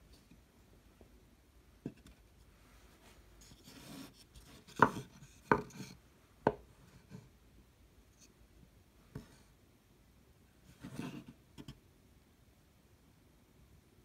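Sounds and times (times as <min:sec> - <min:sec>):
wood scraping: 0:03.4 - 0:07.2.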